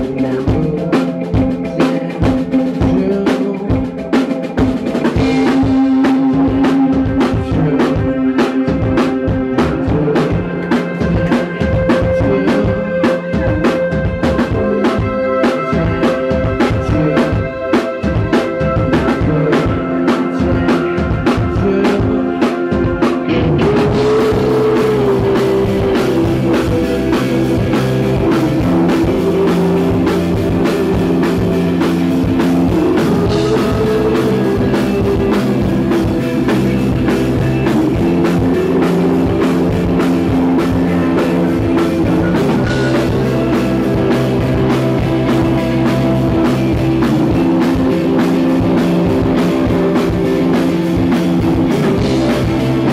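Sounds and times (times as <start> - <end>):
rock band playing: 0.0 - 52.9
drum hits: 18.0 - 52.9.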